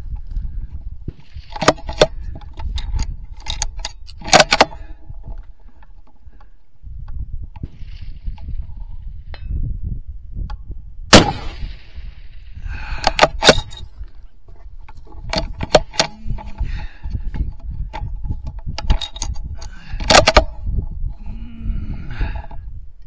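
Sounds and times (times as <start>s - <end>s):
wind buffeting microphone: 0.0s - 23.0s
sharp clicks and knocks: 1.1s - 6.5s, 12.9s - 21.0s
rifle shot with echo: 11.1s - 12.4s.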